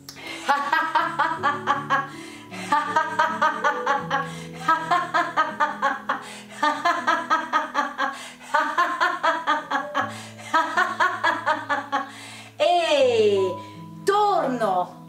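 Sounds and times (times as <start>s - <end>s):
background music low held notes: 0.0s - 15.0s
woman laughing: 0.4s - 12.1s.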